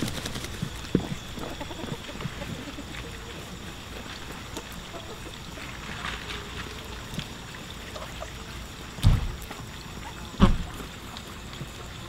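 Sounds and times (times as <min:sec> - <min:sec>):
hens pecking at dry soil: 0:00.0 - 0:12.0
hens clucking softly: 0:00.2 - 0:07.2.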